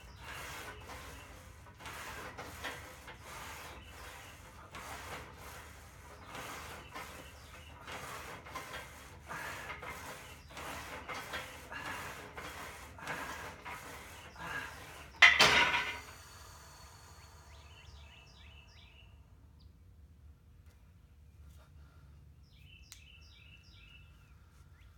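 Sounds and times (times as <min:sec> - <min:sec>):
bar rubbing on guide rods: 0:00.0 - 0:16.1.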